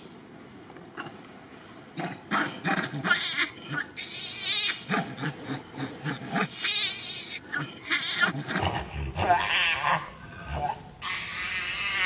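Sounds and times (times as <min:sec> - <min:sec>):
monkey screaming: 0:02.0 - 0:08.7, 0:11.0 - 0:12.0.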